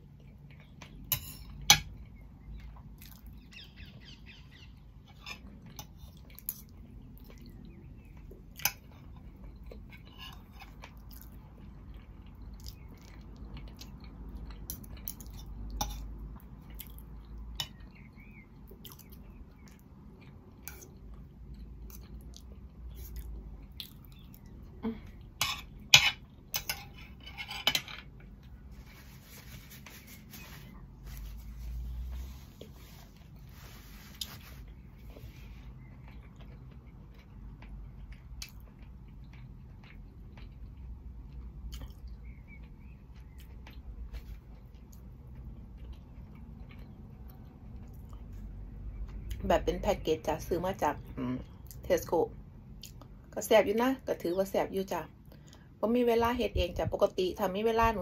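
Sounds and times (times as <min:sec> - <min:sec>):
chewing: 0:02.0 - 0:03.4, 0:05.4 - 0:25.4, 0:28.2 - 0:49.4, 0:52.8 - 0:53.2.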